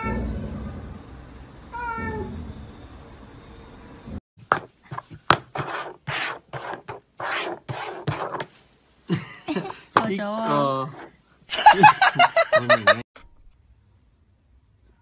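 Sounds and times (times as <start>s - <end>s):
plastic cups scraping on tabletop: 4.5s - 8.6s, 9.9s - 11.1s.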